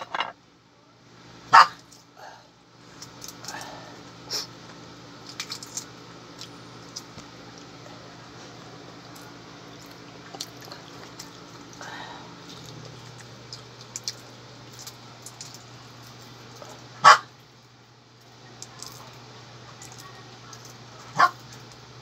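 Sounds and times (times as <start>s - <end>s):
dog barking: 1.5s - 1.8s, 17.0s - 17.3s, 21.1s - 21.4s
eggshells being peeled: 5.1s - 7.8s.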